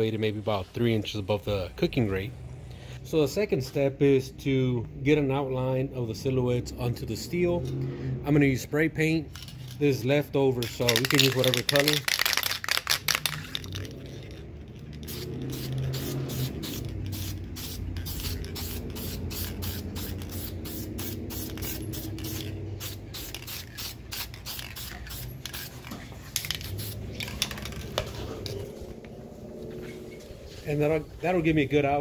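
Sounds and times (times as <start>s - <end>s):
spray paint can hissing bursts: 10.8s - 27.9s.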